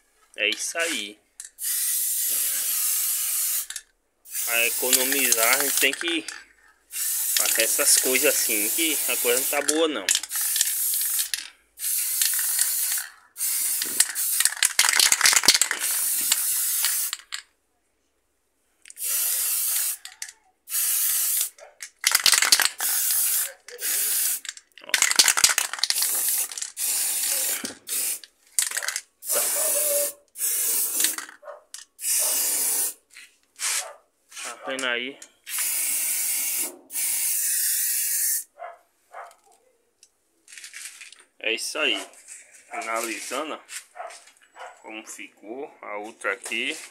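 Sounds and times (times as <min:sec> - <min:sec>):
spray paint can hissing: 0:01.6 - 0:17.4, 0:18.9 - 0:33.0, 0:35.5 - 0:38.5.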